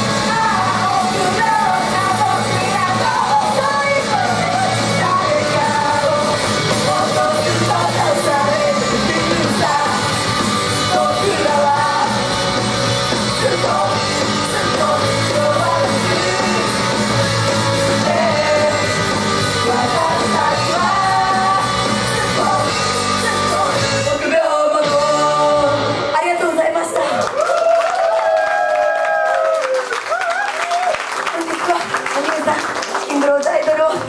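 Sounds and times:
women singing and shouting: 0.0 - 12.3, 13.4 - 17.0, 19.6 - 27.2
loud rock backing music: 0.0 - 26.4.

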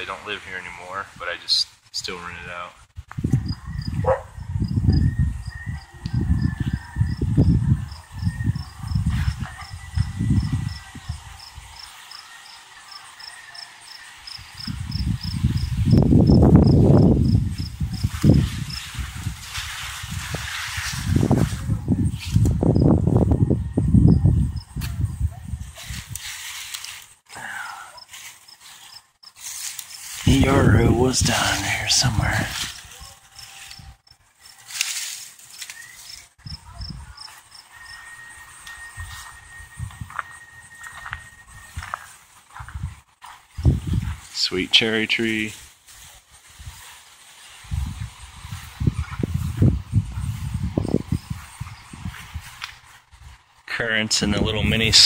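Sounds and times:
cricket chirping: 3.4 - 18.9, 35.5 - 42.1
foliage rustling: 7.8 - 22.8, 25.5 - 53.7
footsteps: 8.6 - 12.3, 14.4 - 22.6, 25.6 - 27.3, 27.9 - 53.8
thin steady high tone: 37.0 - 42.0.

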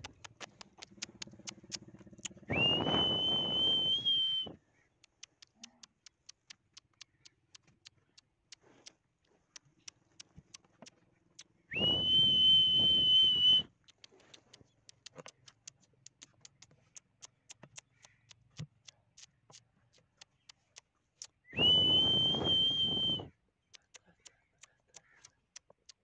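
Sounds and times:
faint quick ticking: 0.0 - 3.5, 5.0 - 12.0, 13.6 - 26.0
long high whistles: 2.5 - 4.6, 11.7 - 13.7, 21.5 - 23.3.

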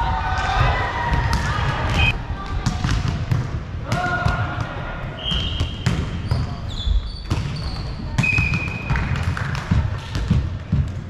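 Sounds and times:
sneaker squeaks on floor: 5.2 - 8.9.

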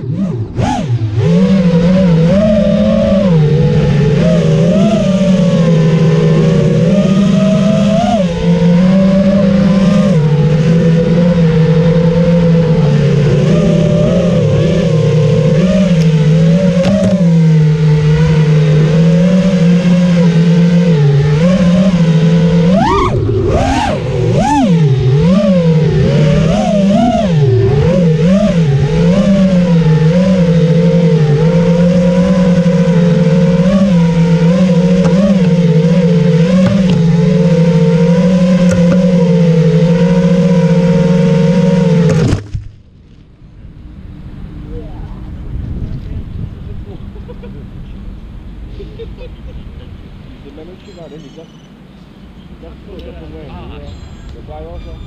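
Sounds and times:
quadcopter motors whining: 0.0 - 42.4, 43.7 - 55.0.

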